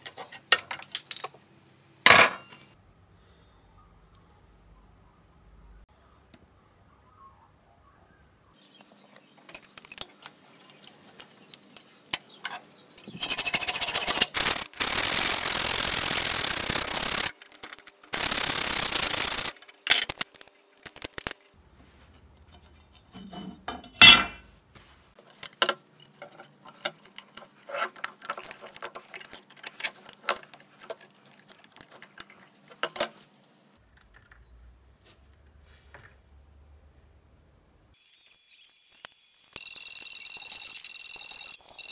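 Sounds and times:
harsh grinding noise on metal: 13.0s - 19.6s.

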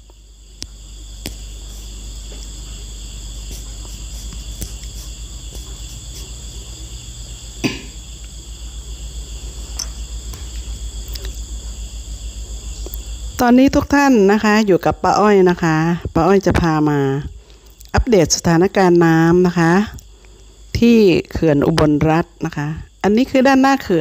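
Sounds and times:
insects trilling: 0.0s - 24.0s.

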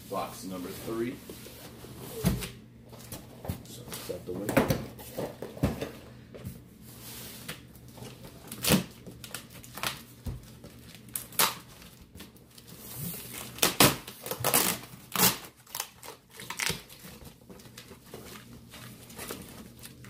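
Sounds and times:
tape peeling off cardboard: 13.6s - 17.0s.

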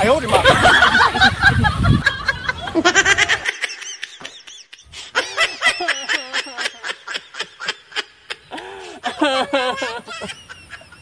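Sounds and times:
person giggling: 2.5s - 11.0s.

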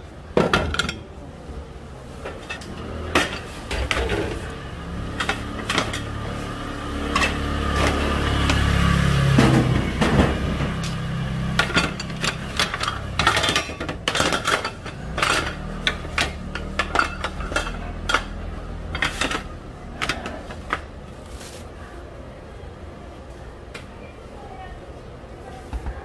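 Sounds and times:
metal moulds clattering on trays: 0.3s - 1.2s, 2.1s - 21.0s.

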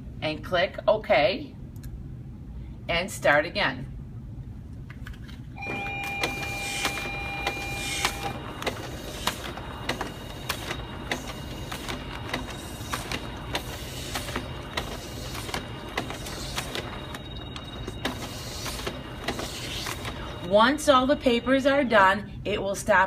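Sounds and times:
scanner clicks: 5.6s - 21.9s
document scanner feeding sheets: 5.6s - 22.0s.

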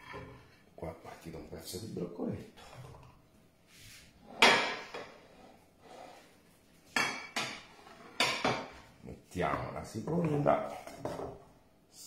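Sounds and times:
kitchenware clattering: 0.0s - 0.6s, 4.2s - 5.3s, 6.9s - 11.5s
sharp knocks of cookware: 6.9s - 8.8s.

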